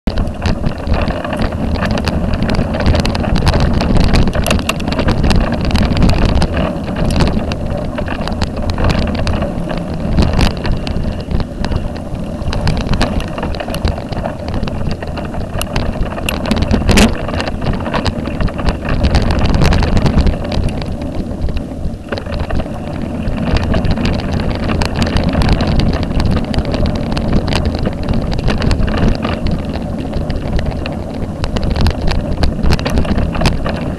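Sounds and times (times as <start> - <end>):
bicycle tyres rumbling on dirt: 0.0 - 33.9
camera rattles and knocks: 0.0 - 33.9
wind buffeting microphone: 0.0 - 33.9.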